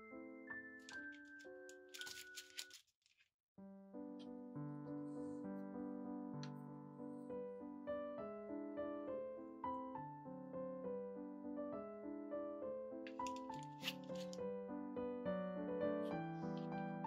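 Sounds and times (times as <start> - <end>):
gentle piano music: 0.0 - 2.7, 3.6 - 17.0
crackly rustle: 0.8 - 3.3.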